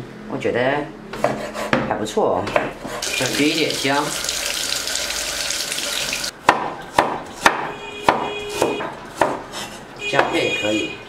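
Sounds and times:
tap water running: 0:03.0 - 0:06.4
cleaver chopping on wooden board: 0:06.4 - 0:09.5.

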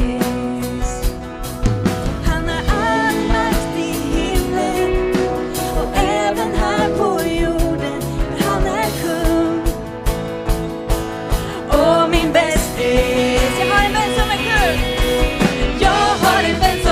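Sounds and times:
person singing: 0:00.0 - 0:09.9, 0:11.3 - 0:15.0, 0:15.6 - 0:16.9
acoustic guitar: 0:00.0 - 0:16.9
electric guitar: 0:00.0 - 0:16.9
drum kit hits: 0:12.6 - 0:16.9.

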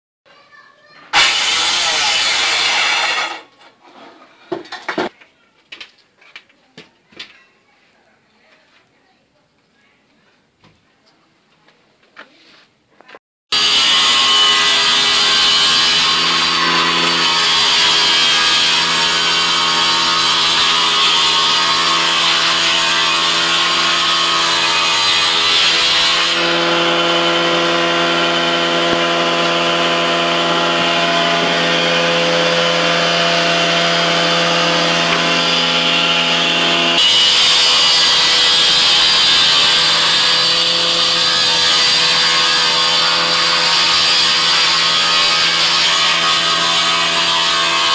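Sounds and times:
table saw cutting wood: 0:01.1 - 0:03.5, 0:13.5 - 0:47.9.

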